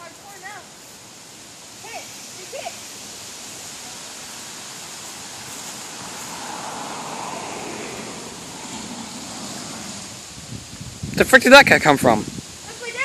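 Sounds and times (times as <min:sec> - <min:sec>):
outdoor hiss: 0:00.0 - 0:13.0
car passing on road: 0:03.0 - 0:12.6.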